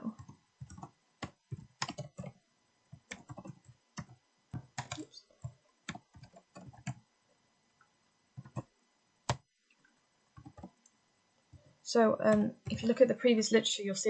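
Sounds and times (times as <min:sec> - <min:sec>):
typing on computer keyboard: 0:00.2 - 0:02.4, 0:03.0 - 0:07.0, 0:08.4 - 0:08.7, 0:10.4 - 0:10.8.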